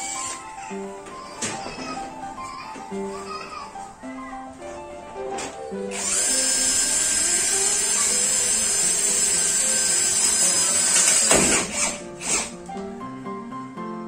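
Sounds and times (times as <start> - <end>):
cordless drill whine: 5.9 - 12.5.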